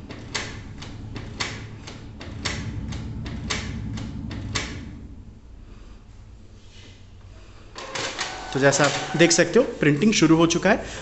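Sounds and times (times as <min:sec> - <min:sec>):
printer mechanism clicks: 0:07.8 - 0:09.2
printer motor hum: 0:07.8 - 0:10.2.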